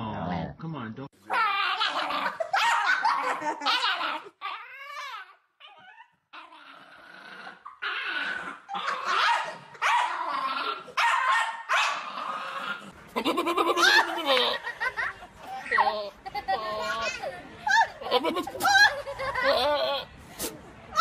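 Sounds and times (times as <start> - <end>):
dog whining: 1.3 - 9.2
dog barking: 2.5 - 3.4, 9.1 - 10.2, 11.0 - 12.1.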